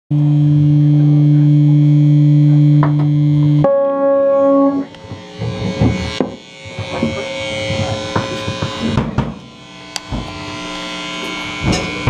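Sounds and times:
distorted guitar amplifier drone: 0.1s - 12.0s
high feedback tone: 3.2s - 7.8s
knocks and thumps: 5.1s - 9.4s.

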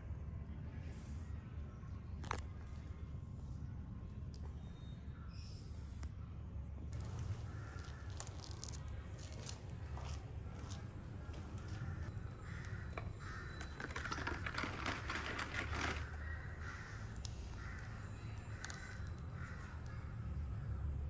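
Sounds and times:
crows cawing: 7.0s - 20.8s.

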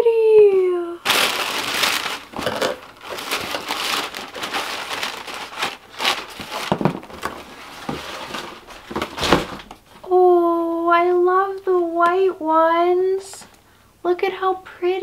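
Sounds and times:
tissue paper crinkling: 1.0s - 9.7s.

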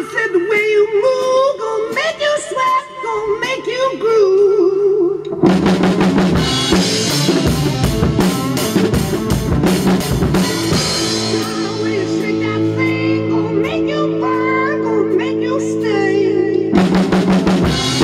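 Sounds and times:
rock music recording: 5.2s - 18.0s
acoustic drum kit playing: 5.3s - 18.0s
person singing: 10.3s - 16.9s.

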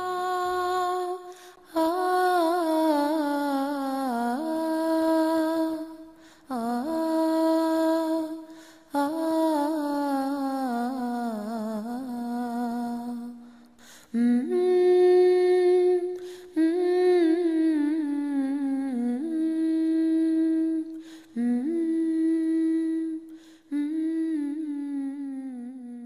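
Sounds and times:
woman breathing: 1.3s - 1.7s, 6.1s - 6.5s, 8.4s - 9.0s, 13.4s - 14.2s, 16.2s - 16.6s, 21.0s - 21.4s, 23.3s - 23.7s
woman humming a slow melody: 14.2s - 26.0s.

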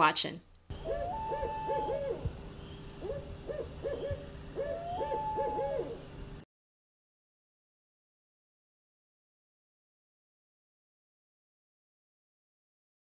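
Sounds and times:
owls hooting: 0.7s - 6.1s.

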